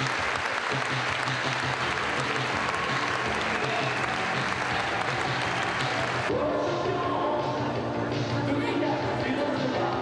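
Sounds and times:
crowd applauding: 0.0 - 6.3.

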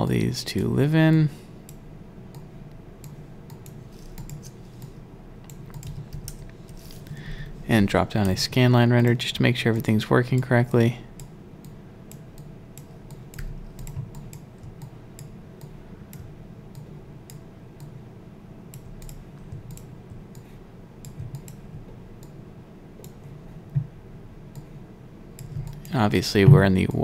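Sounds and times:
steady low hum: 0.0 - 27.0
keyboard and mouse clicking: 1.7 - 6.9, 11.2 - 18.0, 18.7 - 22.4, 25.4 - 26.0.

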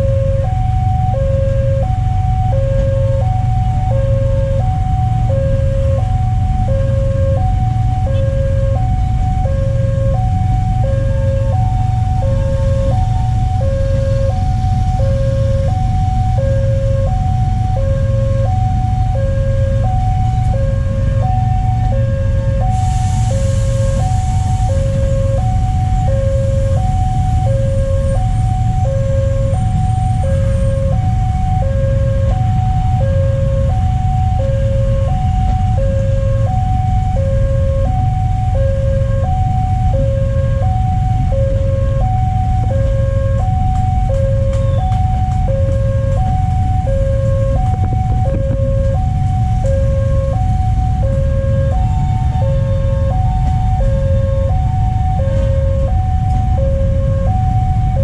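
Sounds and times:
electric train rumbling past: 0.0 - 36.9.

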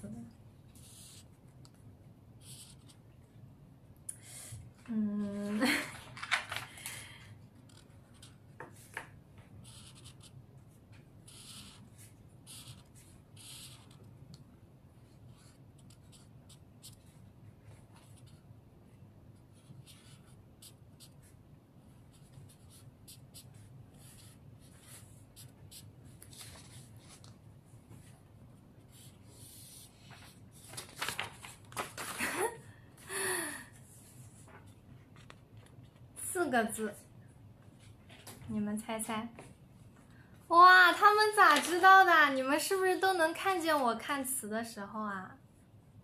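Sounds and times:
marker scratching on paper: 0.7 - 1.6, 2.4 - 3.1, 7.6 - 9.0, 9.6 - 14.2, 15.0 - 18.5, 19.4 - 27.3, 28.8 - 30.5.

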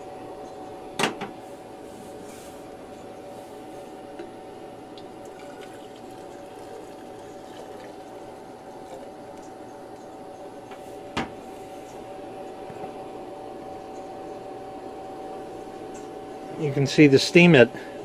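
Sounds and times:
cooling fan hum: 0.0 - 18.0
water pouring into glass mug: 5.2 - 9.2.

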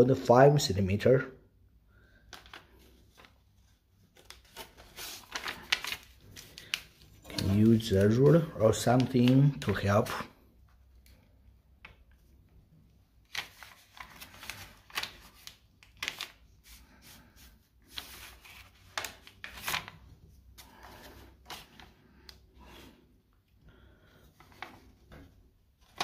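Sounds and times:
paper rustling and crinkling: 2.3 - 10.2, 13.2 - 23.1, 24.2 - 26.0.

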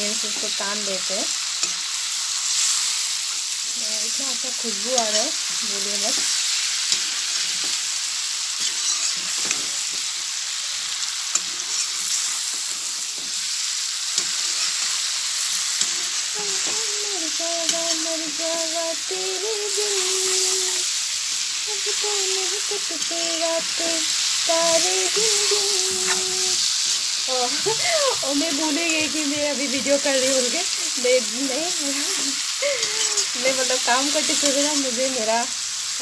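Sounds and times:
curry sizzling in a pan: 0.0 - 36.0
woman humming: 16.3 - 20.9, 21.6 - 26.7, 27.3 - 35.1.

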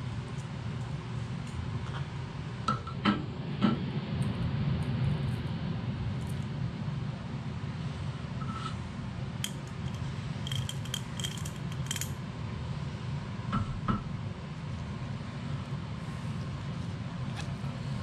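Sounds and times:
metal gear parts clinking: 10.5 - 12.1.

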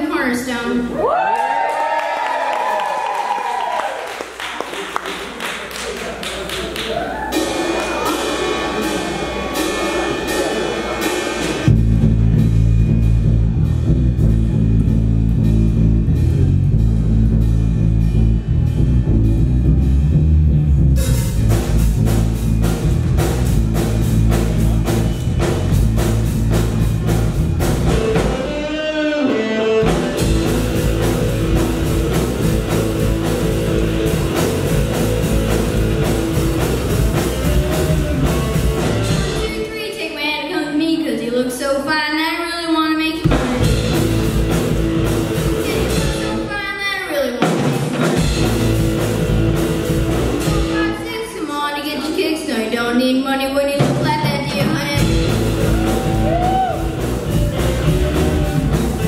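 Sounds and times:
drum kit: 4.3 - 39.8, 43.2 - 51.2, 53.8 - 59.0
bass guitar: 6.8 - 39.7, 43.2 - 46.8, 47.5 - 51.2, 53.8 - 59.0
electric guitars: 20.7 - 39.5, 43.3 - 46.5, 47.8 - 51.0, 55.0 - 59.0.

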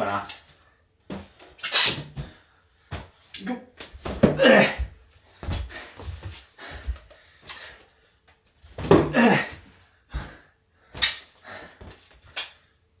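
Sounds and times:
man grunting with effort: 4.2 - 5.0, 8.9 - 9.7
balloon smacking a wall: 8.8 - 9.2.

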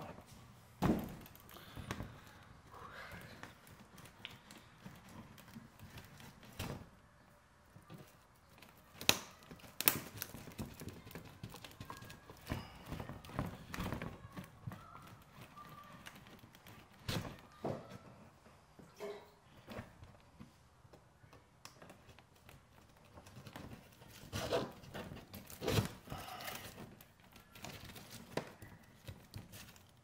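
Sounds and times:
birch bark knocking and crackling: 7.9 - 17.9.

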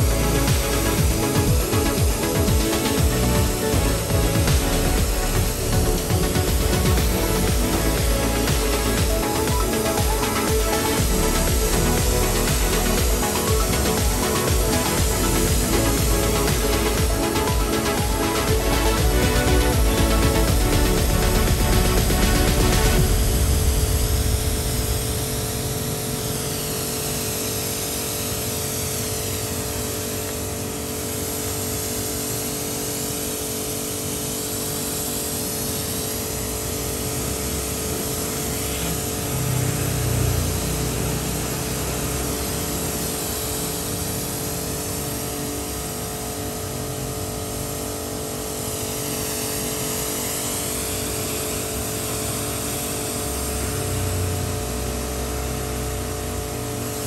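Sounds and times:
water jet hissing: 0.0 - 26.7
pressure washer motor hum: 0.0 - 29.9, 34.4 - 45.2.

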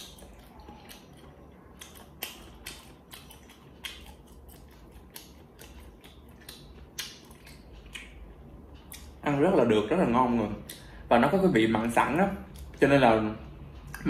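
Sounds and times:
quiet chewing: 0.0 - 9.2
wet mouth clicks and smacks: 1.8 - 8.3.

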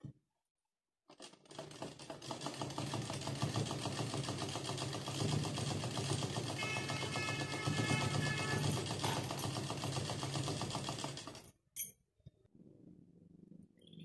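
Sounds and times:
sewing machine stitching: 1.1 - 11.6.

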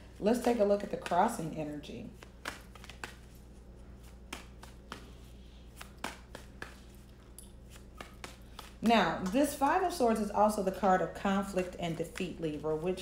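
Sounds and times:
cards tapping and clicking: 2.2 - 3.4, 4.0 - 9.5.

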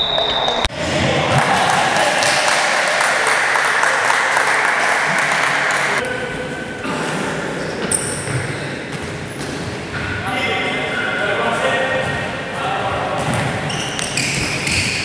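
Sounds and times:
crowd clapping and cheering: 0.0 - 6.0.

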